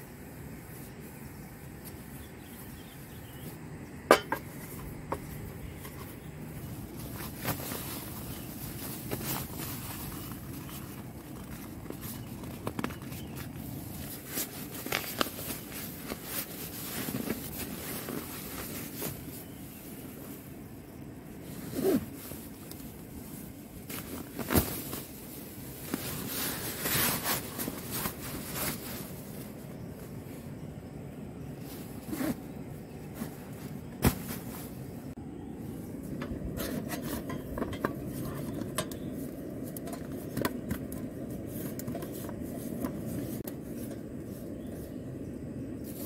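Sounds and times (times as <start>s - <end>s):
nylon sacks rustling: 4.6s - 20.5s, 21.3s - 30.4s, 31.6s - 35.8s.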